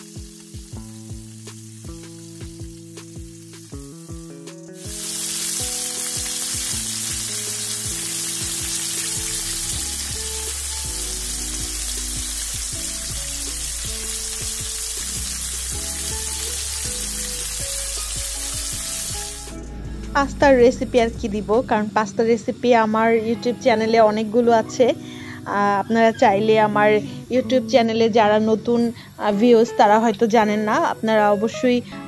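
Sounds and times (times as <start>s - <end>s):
chicken deep-frying in oil: 0.0s - 19.5s.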